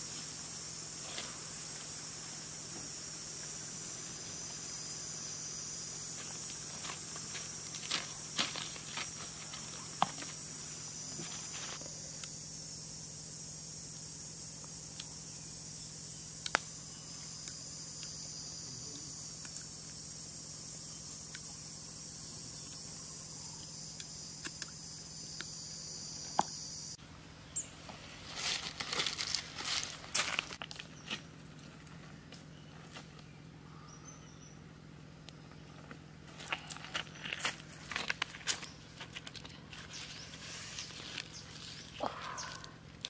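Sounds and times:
insects shrilling: 0:00.0 - 0:31.4, 0:36.2 - 0:43.0
close crackling and rustling: 0:28.0 - 0:31.9, 0:36.3 - 0:42.6.

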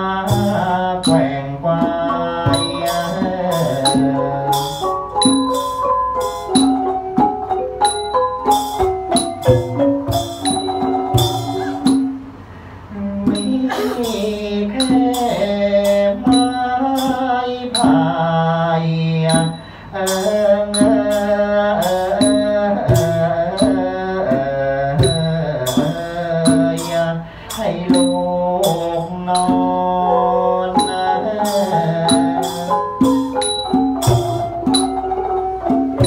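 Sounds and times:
stepping melody: 0:00.4 - 0:12.4, 0:28.0 - 0:36.0.

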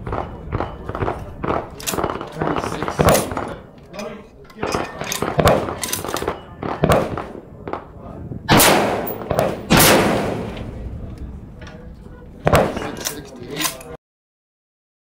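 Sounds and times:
loud gunshots with echo: 0:00.0 - 0:03.6, 0:04.6 - 0:07.9, 0:08.5 - 0:10.9.

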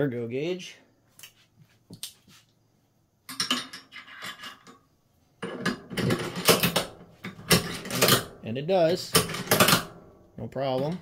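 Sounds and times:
metal-on-metal clatter: 0:03.3 - 0:04.8, 0:05.4 - 0:08.4, 0:09.0 - 0:10.0
metal clinking and scraping: 0:03.3 - 0:10.0.

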